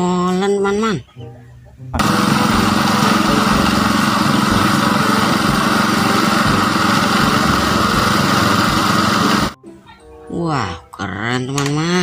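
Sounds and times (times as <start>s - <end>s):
truck engine running: 2.0s - 9.6s.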